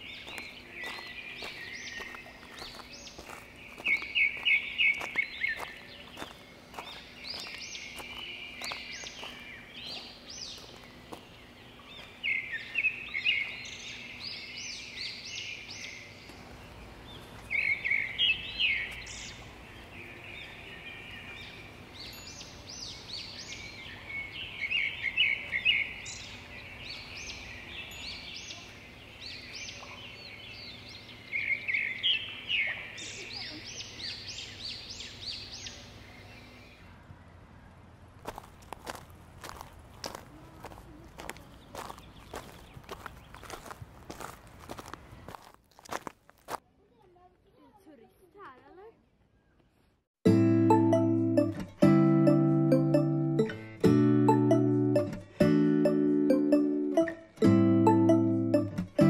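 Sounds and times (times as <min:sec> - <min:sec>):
songbirds chirping and trilling: 0:00.0 - 0:45.5.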